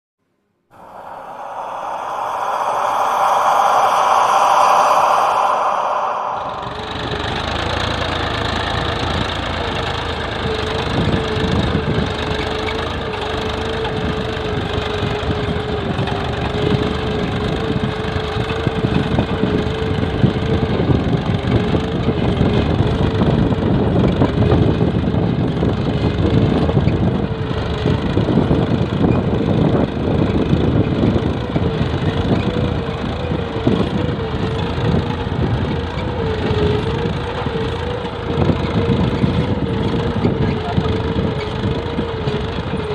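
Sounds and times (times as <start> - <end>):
wavering whine: 0.7 - 9.4.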